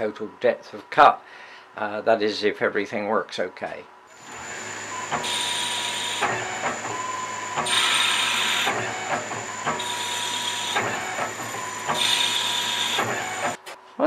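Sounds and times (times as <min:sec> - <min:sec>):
lathe machine hum: 0:04.1 - 0:13.6
hissing thread cutting: 0:04.2 - 0:13.6.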